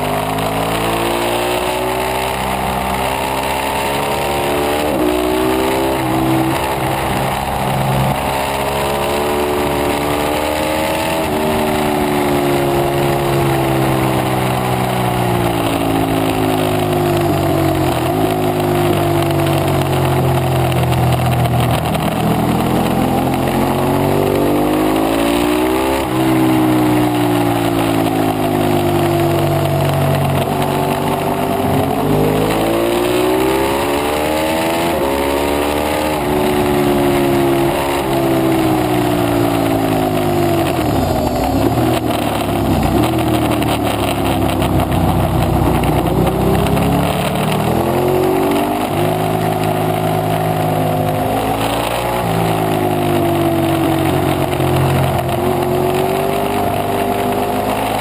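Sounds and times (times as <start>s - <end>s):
motorcycle engine revving: 0.0s - 58.0s
wind rush: 40.4s - 46.3s.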